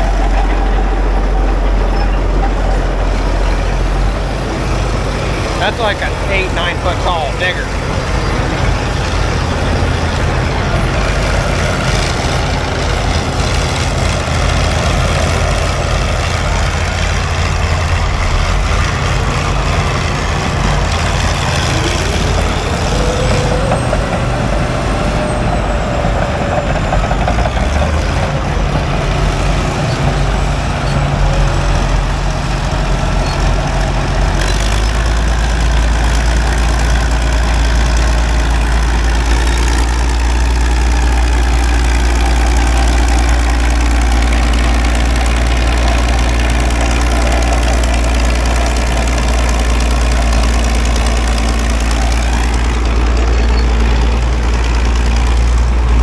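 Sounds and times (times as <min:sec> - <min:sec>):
heavy machinery engine running: 0:00.0 - 0:56.0
rising whine: 0:55.2 - 0:56.0.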